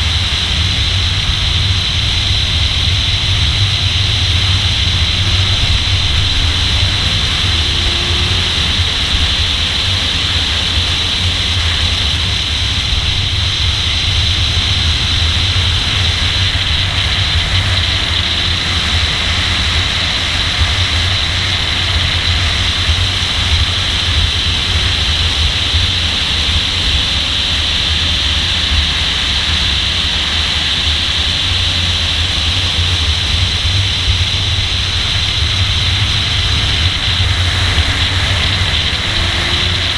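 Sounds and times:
engine and road drone: 0.0s - 39.9s
wind rushing over microphone: 0.0s - 39.9s.

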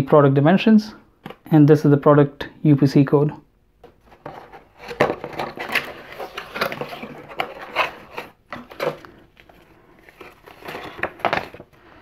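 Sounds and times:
cardboard scraping: 4.0s - 11.7s
paper card rustling: 4.0s - 11.8s.

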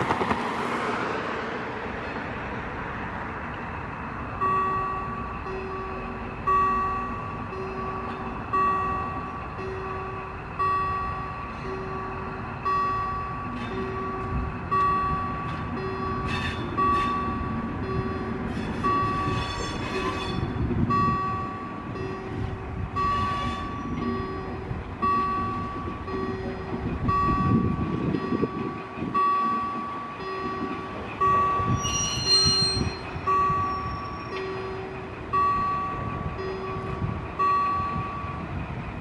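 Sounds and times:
diesel locomotive rumbling: 0.0s - 39.0s
wheels squealing: 14.8s - 21.4s, 22.2s - 26.4s, 27.1s - 36.0s.

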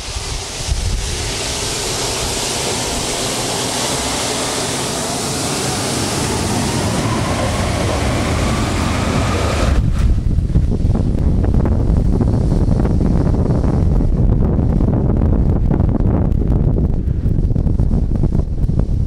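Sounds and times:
jet blast wind buffeting: 0.0s - 19.0s
jet engines spooling up: 0.0s - 19.0s.

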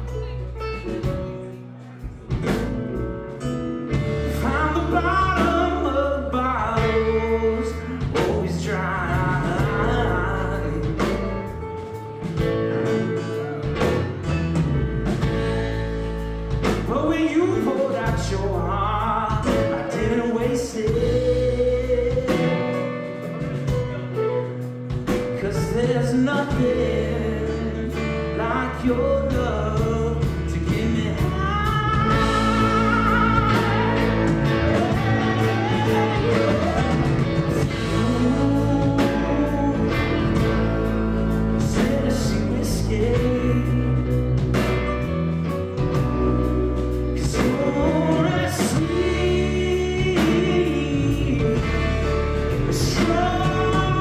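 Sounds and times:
guitar: 0.0s - 54.0s
bass with low pulse: 2.1s - 22.8s, 24.9s - 54.0s
person singing: 3.9s - 12.0s, 16.6s - 44.7s, 45.7s - 54.0s.

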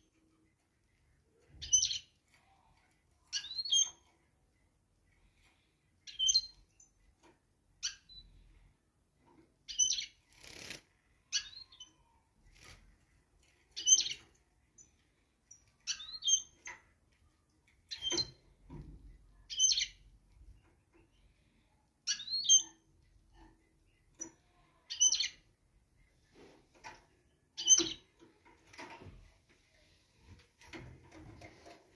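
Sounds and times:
finches chirping: 1.5s - 2.1s, 9.7s - 10.6s, 19.5s - 20.1s, 24.3s - 25.5s, 27.6s - 28.1s
birds hopping on perches: 9.8s - 11.0s.

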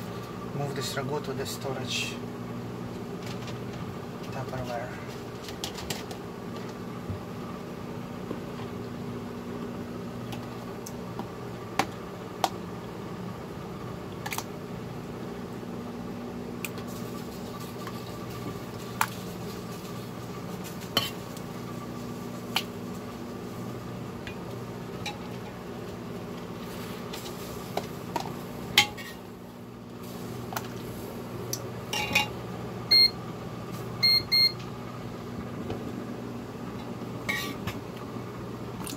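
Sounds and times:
steady low hum: 0.0s - 38.9s
metal ladle scraping a pot: 37.3s - 37.6s.

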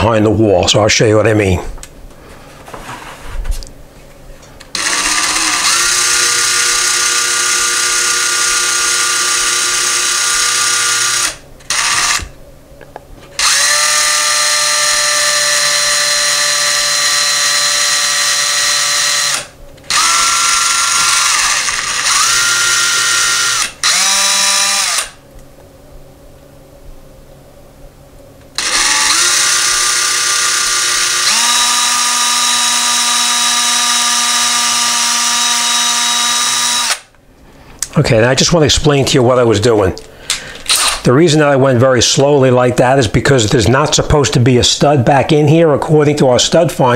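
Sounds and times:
cordless drill into drywall: 4.7s - 12.3s, 13.4s - 25.2s, 28.6s - 37.1s.

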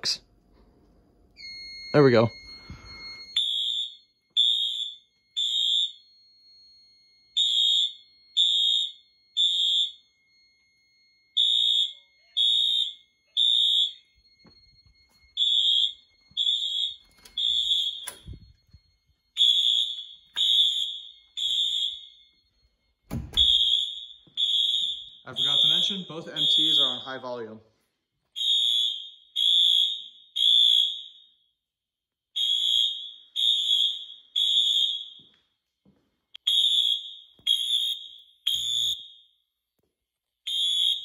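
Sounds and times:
fire alarm beeping: 0.0s - 39.6s, 40.4s - 41.0s.

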